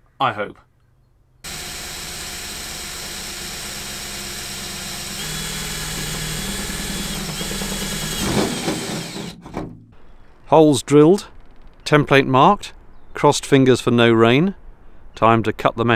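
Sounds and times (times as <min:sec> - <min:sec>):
cordless drill boring metal: 0:01.5 - 0:09.4.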